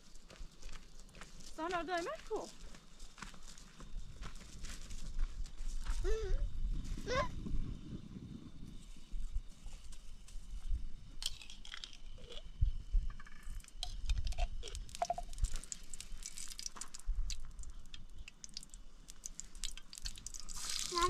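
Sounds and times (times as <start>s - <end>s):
eggs cracking on stone: 11.2s - 12.5s, 13.6s - 21.0s.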